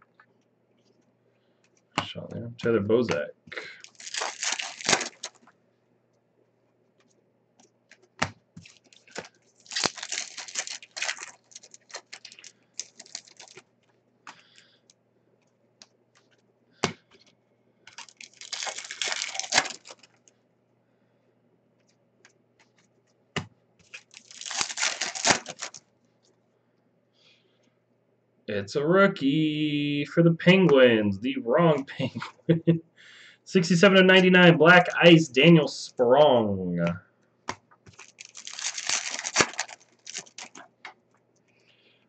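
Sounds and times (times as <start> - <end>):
card pack wrappers tearing and crinkling: 3.6 - 5.4, 8.6 - 13.6, 17.9 - 20.2, 23.8 - 25.8, 37.9 - 40.7.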